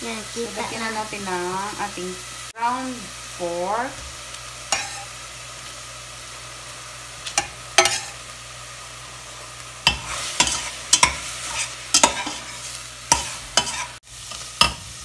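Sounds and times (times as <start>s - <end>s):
frying sizzle: 0.0s - 15.0s
metal spatula scraping pans: 4.7s - 5.1s, 7.4s - 8.2s, 9.8s - 14.9s.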